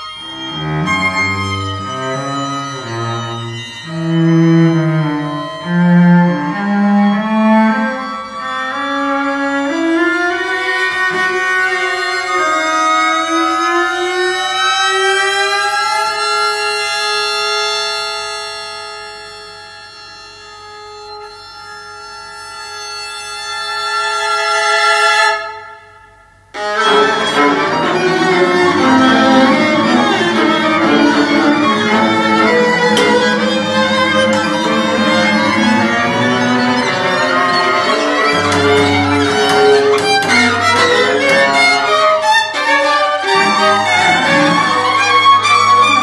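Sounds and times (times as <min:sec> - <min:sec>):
bowed strings playing: 0:00.0 - 0:15.3, 0:26.6 - 0:46.0
held chord of steady tones: 0:00.0 - 0:24.4, 0:26.6 - 0:46.0.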